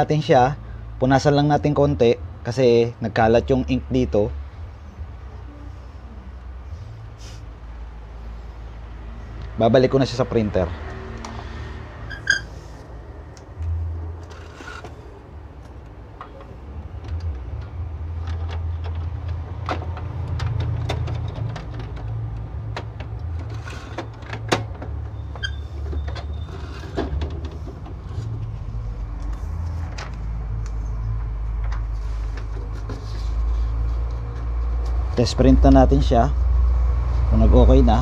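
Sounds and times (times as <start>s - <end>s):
steady low hum: 0.0s - 20.5s.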